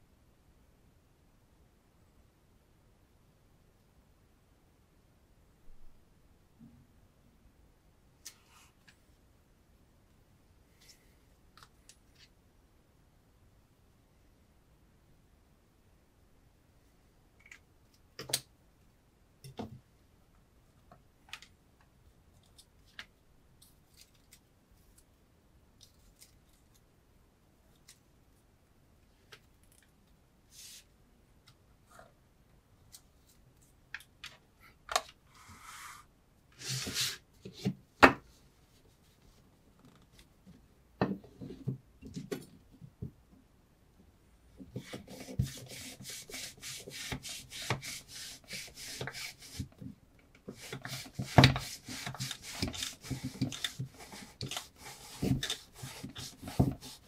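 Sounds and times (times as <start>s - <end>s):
knife scraping strokes: 50.5s - 57.0s.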